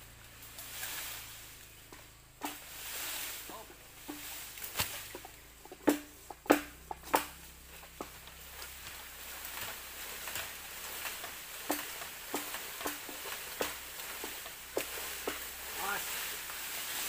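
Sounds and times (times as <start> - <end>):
hollow knocks on bamboo: 1.9 - 2.7, 4.0 - 15.6
blade chopping bamboo: 4.0 - 16.6.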